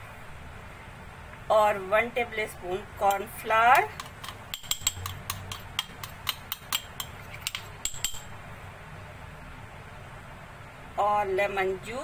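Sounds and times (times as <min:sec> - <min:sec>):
metal spoon tapping plastic bowl: 0:03.1 - 0:08.3.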